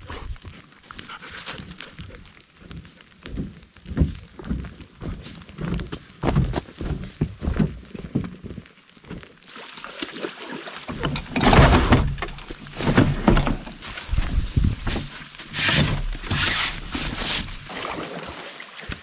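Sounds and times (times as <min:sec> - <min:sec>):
footsteps on forest trail: 0:00.0 - 0:09.4, 0:13.8 - 0:15.5
gear knocking in aluminum canoe: 0:10.9 - 0:17.6.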